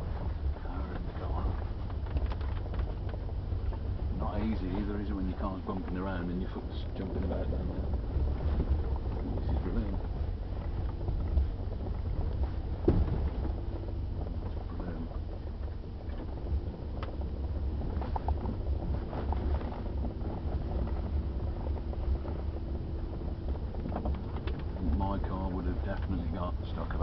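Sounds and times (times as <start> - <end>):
engine and tyres rumbling: 0.0 - 27.0
car bumping knocks: 12.8 - 13.5.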